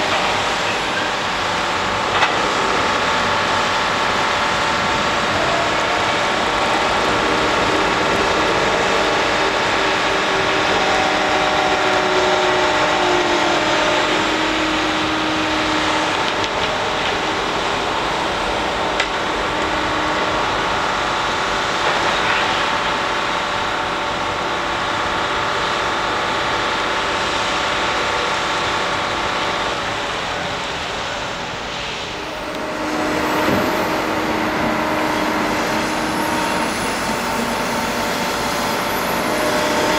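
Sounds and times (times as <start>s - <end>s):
crane engine and winches: 0.0s - 39.9s
whining mechanical tones: 0.0s - 39.9s.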